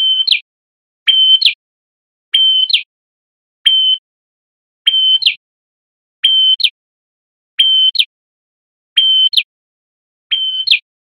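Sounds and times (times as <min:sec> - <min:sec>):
bird whistling and chirping: 0:00.0 - 0:00.4, 0:01.1 - 0:01.6, 0:02.3 - 0:02.9, 0:03.6 - 0:04.1, 0:04.8 - 0:05.4, 0:06.2 - 0:06.8, 0:07.6 - 0:08.1, 0:08.9 - 0:09.5, 0:10.3 - 0:10.8.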